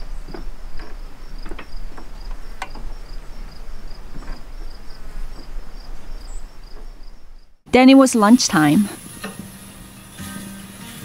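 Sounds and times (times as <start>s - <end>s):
insect chirping: 0.0s - 7.6s.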